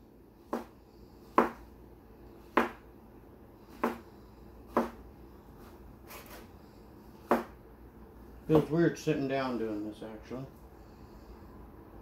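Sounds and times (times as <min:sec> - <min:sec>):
knife knocking on cutting board: 0:01.4 - 0:01.6, 0:02.6 - 0:02.8, 0:03.8 - 0:04.0, 0:04.7 - 0:05.0, 0:07.3 - 0:07.6.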